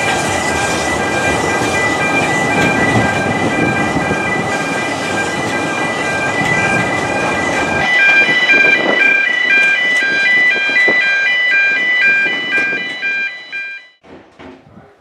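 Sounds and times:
electronic warning tones: 0:00.0 - 0:14.0
train wheels running on track: 0:00.0 - 0:14.6
knocks: 0:14.0 - 0:14.8.

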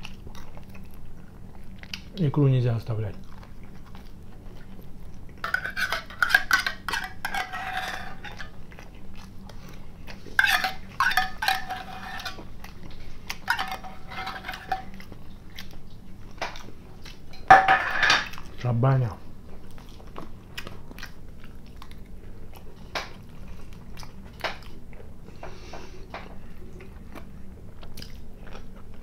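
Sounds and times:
metal spoon scraping a tin: 0:05.4 - 0:08.5, 0:10.4 - 0:12.4, 0:13.5 - 0:14.9.

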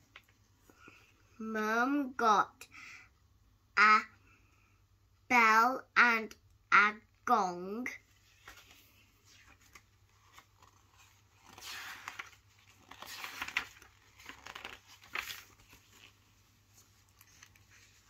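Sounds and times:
book pages rustling: 0:00.0 - 0:01.1, 0:08.0 - 0:18.0.

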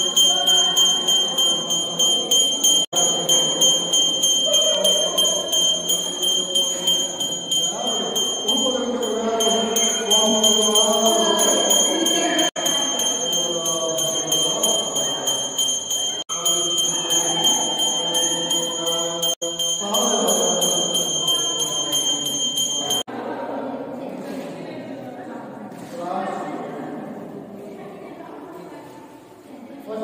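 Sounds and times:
small bell rung rapidly: 0:00.0 - 0:23.1
voices singing a chant: 0:00.0 - 0:23.9.

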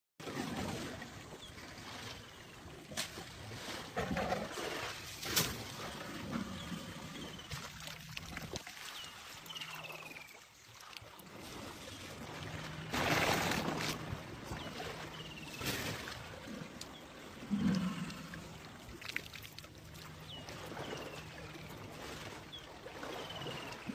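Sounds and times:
water sloshing and trickling: 0:00.2 - 0:23.9
water splashing: 0:00.2 - 0:23.9.

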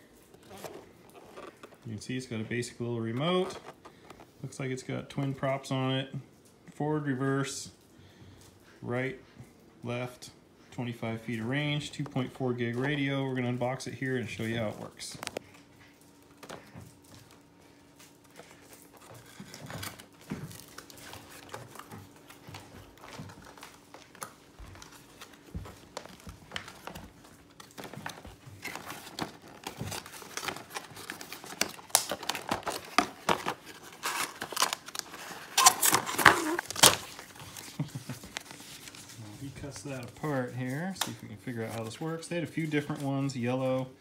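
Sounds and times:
packaging crinkling: 0:00.1 - 0:02.0, 0:14.8 - 0:43.9
cardboard box being opened: 0:27.8 - 0:39.1.

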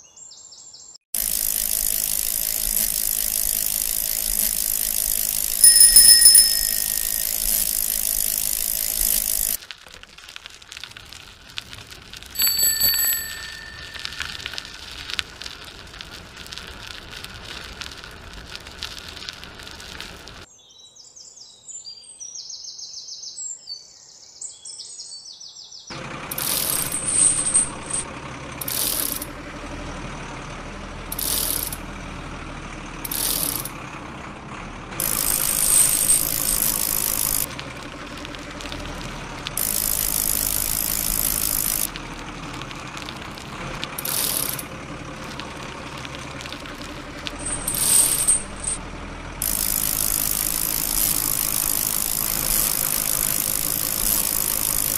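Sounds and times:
toy bicycle chain ratcheting: 0:01.2 - 0:20.4, 0:26.3 - 0:28.0, 0:28.6 - 0:29.3, 0:31.1 - 0:31.9, 0:33.0 - 0:33.8, 0:35.0 - 0:48.8, 0:49.4 - 0:54.9.

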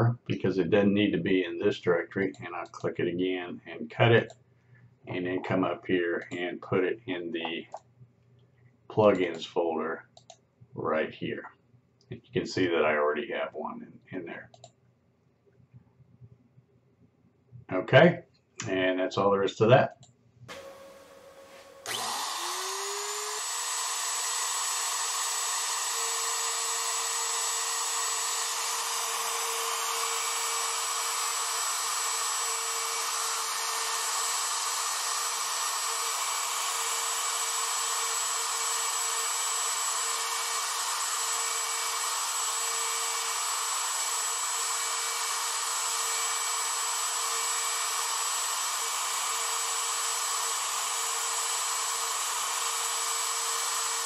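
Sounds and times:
router spindle high whine: 0:20.5 - 0:54.0.

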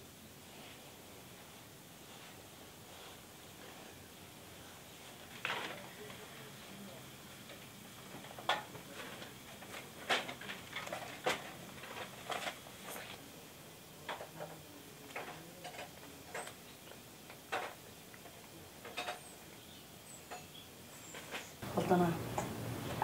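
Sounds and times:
faint room hiss: 0:00.0 - 0:23.0
wood fire crackling in stove: 0:00.0 - 0:23.0.

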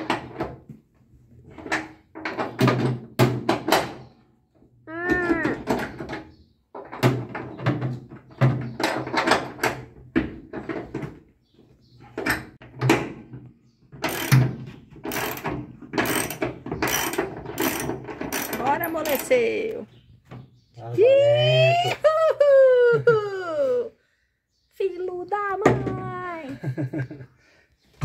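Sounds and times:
ratchet wrench clicking: 0:14.1 - 0:14.4, 0:15.1 - 0:19.4.

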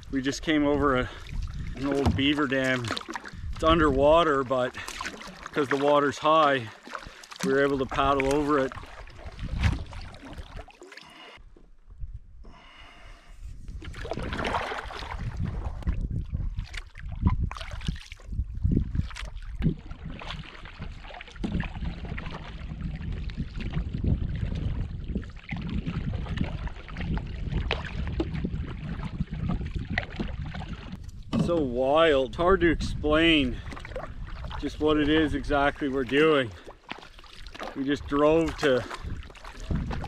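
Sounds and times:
paddle strokes splashing water: 0:00.0 - 0:11.7, 0:12.4 - 0:40.0
person breathing: 0:11.0 - 0:11.4, 0:12.4 - 0:13.5.

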